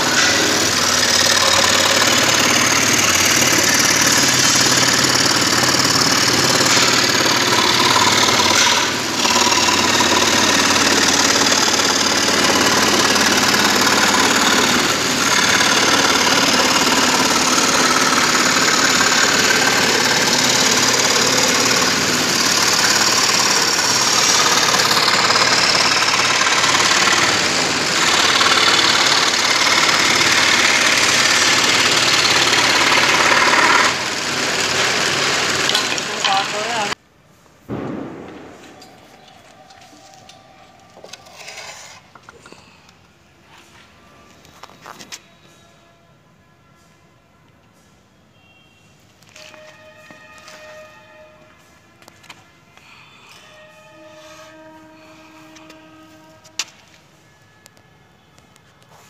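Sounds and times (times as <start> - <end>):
lathe motor hum: 0.0 - 37.0
tool scraping spinning wood: 0.0 - 37.0, 40.9 - 42.7.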